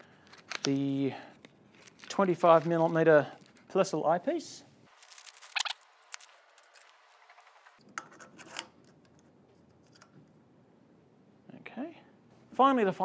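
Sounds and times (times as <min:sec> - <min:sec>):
eyepiece unwrapping and clicking: 0:00.0 - 0:03.8, 0:04.9 - 0:10.4.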